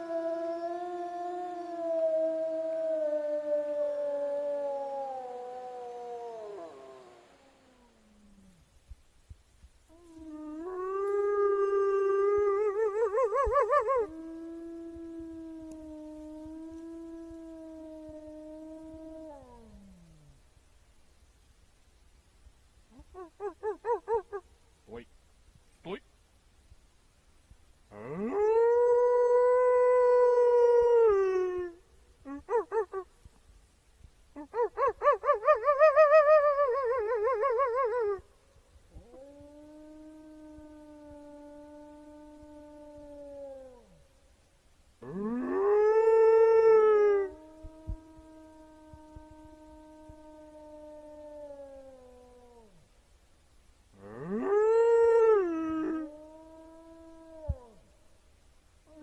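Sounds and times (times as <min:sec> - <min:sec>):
wolf howling: 0:00.0 - 0:08.6, 0:09.9 - 0:20.4, 0:34.4 - 0:38.2, 0:39.0 - 0:44.0, 0:45.0 - 0:52.8, 0:54.0 - 0:57.8.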